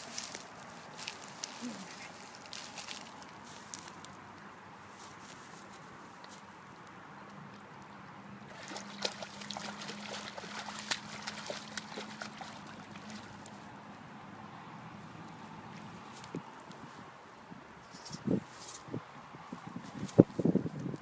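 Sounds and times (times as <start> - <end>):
fish splashing in water: 8.5 - 13.5.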